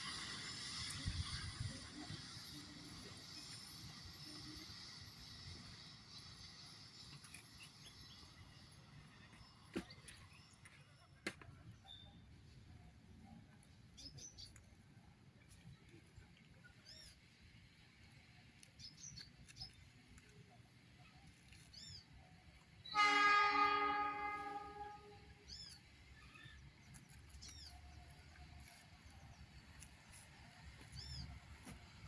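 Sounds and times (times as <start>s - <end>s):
diesel locomotive horn: 22.8s - 25.4s.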